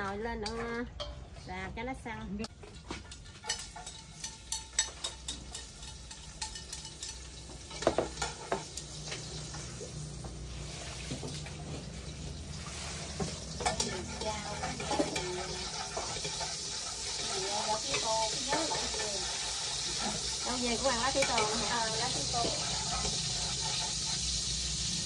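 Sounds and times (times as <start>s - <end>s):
meat sizzling in a pot: 2.5s - 25.0s
utensil scraping a pot: 2.6s - 9.8s, 12.6s - 25.0s.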